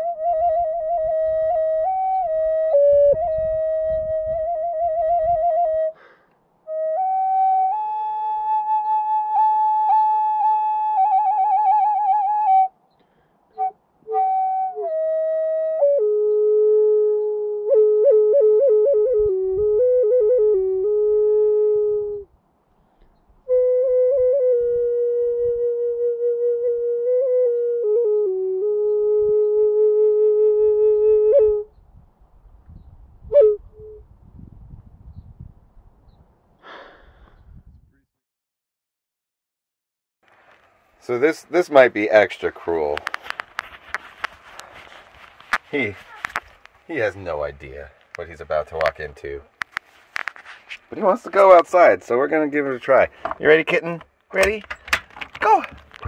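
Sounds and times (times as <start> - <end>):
solo flute: 0.0 - 6.0, 6.6 - 12.8, 13.5 - 22.3, 23.4 - 31.8, 33.2 - 34.0.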